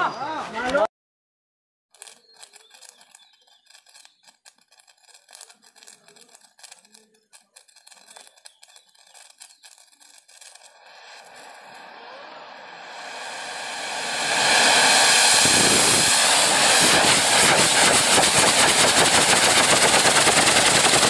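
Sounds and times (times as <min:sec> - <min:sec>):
firework fuse crackling and popping: 0:01.9 - 0:12.1, 0:14.8 - 0:21.0
firework hissing: 0:02.0 - 0:21.0.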